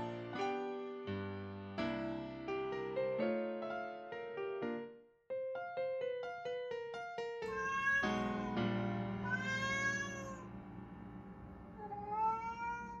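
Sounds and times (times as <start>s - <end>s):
piano music with repeated notes: 0.0s - 12.2s
cat meowing: 7.5s - 8.6s, 9.2s - 10.5s, 11.8s - 13.0s.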